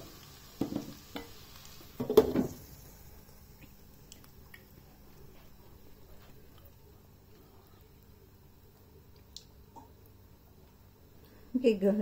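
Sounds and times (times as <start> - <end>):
pots and pans clattering: 2.0 - 2.6.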